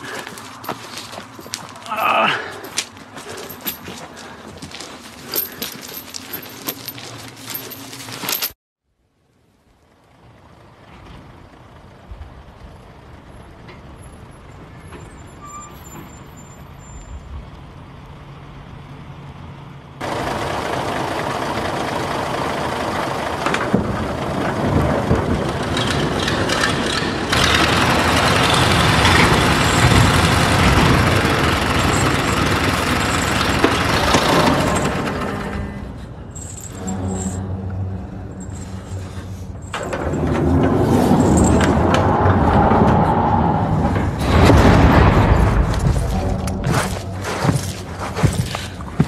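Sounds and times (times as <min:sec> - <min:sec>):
low rumble: 0:28.8 - 0:48.5.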